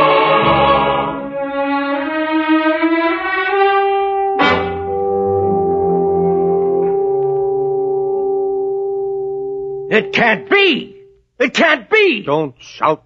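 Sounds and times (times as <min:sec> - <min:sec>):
orchestral music with brass: 0:00.0 - 0:06.8.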